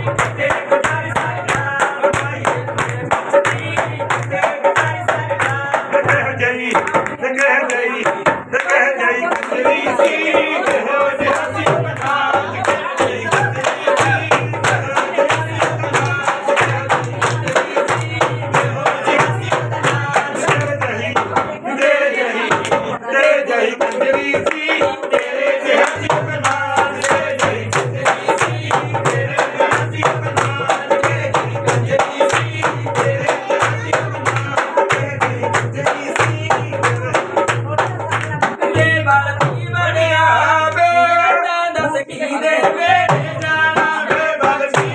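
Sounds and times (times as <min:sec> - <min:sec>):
rhythmic hand clapping: 0:00.0 - 0:39.6, 0:40.6 - 0:41.0, 0:42.6 - 0:44.9
folk singing: 0:00.0 - 0:44.9
low drum beat: 0:11.4 - 0:21.6.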